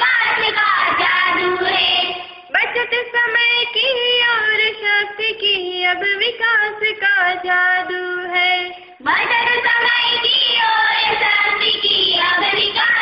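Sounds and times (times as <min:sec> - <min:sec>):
woman singing: 0:02.5 - 0:10.6.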